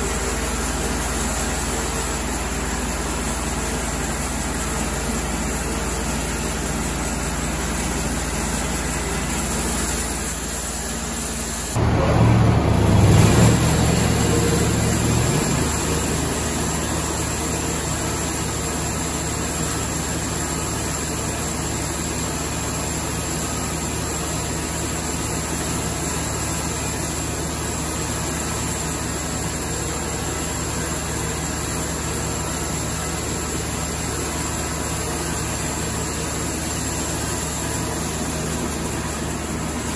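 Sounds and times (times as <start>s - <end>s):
sawmill engine running: 0.0s - 39.9s.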